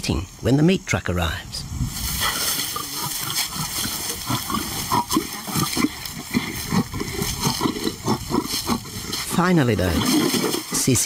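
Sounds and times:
lion growling: 2.2s - 11.0s.

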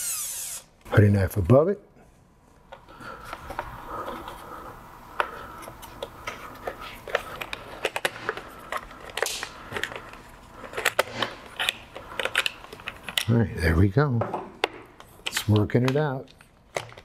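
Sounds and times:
tools scraping plastic: 5.2s - 13.4s
plastic parts clicking and knocking: 14.2s - 17.0s.

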